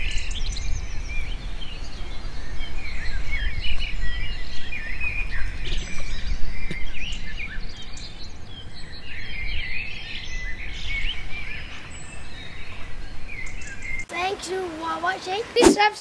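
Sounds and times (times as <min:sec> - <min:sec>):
birds chirping: 0:00.0 - 0:16.0.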